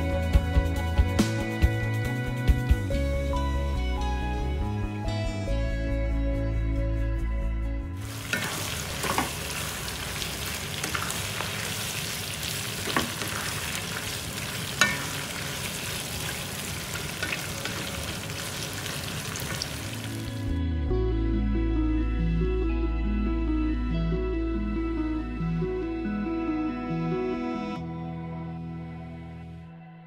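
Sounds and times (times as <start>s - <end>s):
background music: 0.0s - 11.5s, 14.7s - 30.0s
meat sizzling in a wok: 8.0s - 20.5s
spatula knocking on pan: 14.7s - 15.4s.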